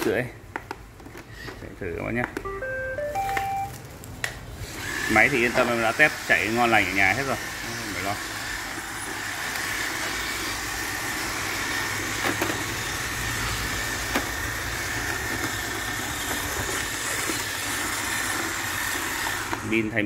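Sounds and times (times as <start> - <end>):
robot vacuum whirring: 4.6 - 20.0.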